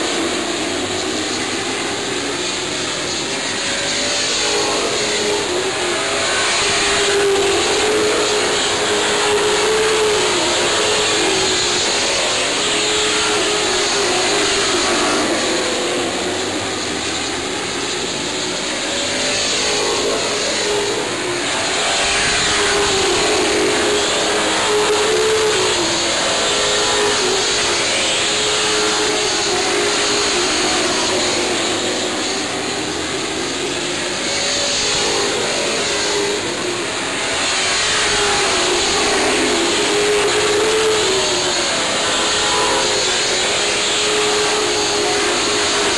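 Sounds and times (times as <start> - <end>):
race car engines running hard: 0.0 - 25.0.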